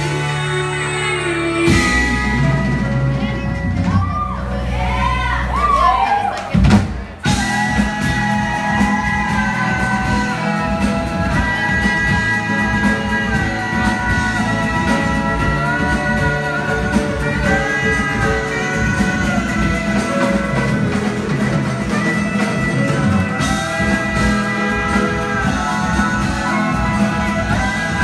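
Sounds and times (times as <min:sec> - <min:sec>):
guitars: 0:00.0 - 0:05.0, 0:07.2 - 0:28.0
saxophone: 0:00.0 - 0:05.9, 0:07.2 - 0:28.0
drum kit: 0:00.0 - 0:28.0
held melody notes bending in pitch: 0:07.3 - 0:28.0.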